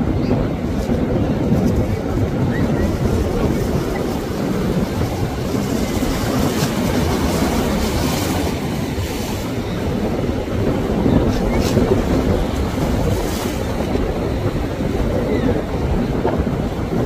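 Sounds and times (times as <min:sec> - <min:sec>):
rumbling wind on microphone: 0:00.0 - 0:17.0
surf washing against rocks: 0:00.0 - 0:17.0.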